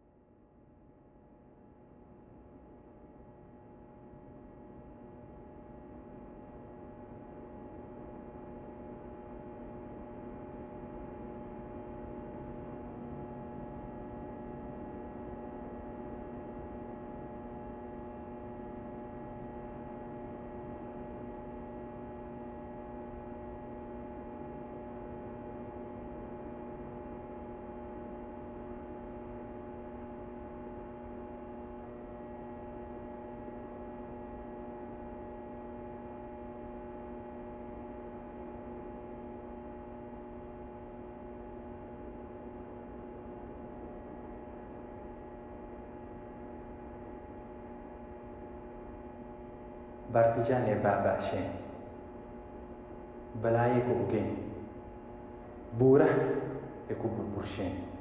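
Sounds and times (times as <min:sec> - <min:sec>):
steady hum with low rumble: 0:46.5 - 0:58.0.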